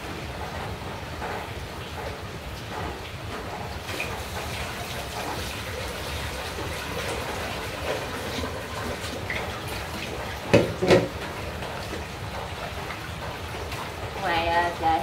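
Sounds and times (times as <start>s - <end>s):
water splashing and running: 0.0s - 15.0s
sharp knocks: 10.5s - 11.2s.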